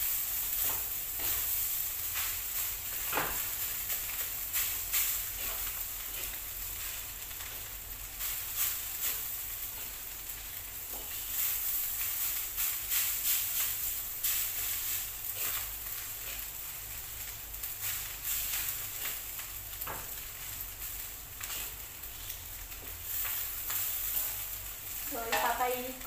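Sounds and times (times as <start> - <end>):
food sizzling in a wok: 0.0 - 26.0
spatula scraping a pan: 4.6 - 7.0, 10.9 - 16.6, 21.4 - 24.6.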